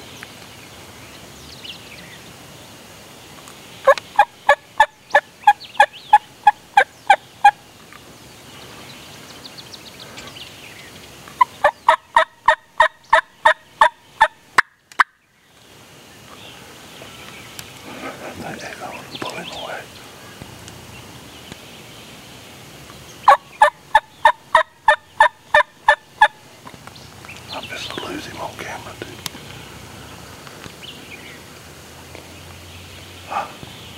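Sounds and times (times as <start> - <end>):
faint songbird chirps: 0.0 - 33.9
wild turkey calling: 3.8 - 7.6, 11.4 - 15.2, 23.1 - 26.5, 27.3 - 29.7.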